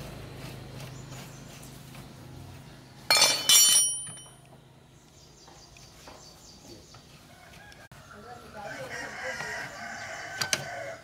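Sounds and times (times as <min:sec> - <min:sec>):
metal tools clanking on concrete: 0:03.1 - 0:04.6.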